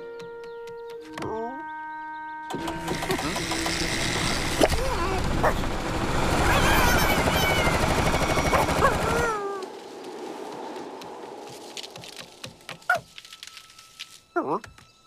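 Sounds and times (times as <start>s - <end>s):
motorized machine whirring: 2.5s - 9.2s
cartoon animal squeals and yelps: 6.4s - 9.6s.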